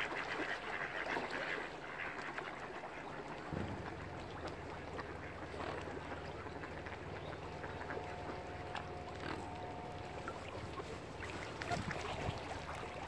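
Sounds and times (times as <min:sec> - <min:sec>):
ducks quacking: 0:00.0 - 0:13.0
steady low hum: 0:03.5 - 0:13.0
held steady tone: 0:07.5 - 0:11.6.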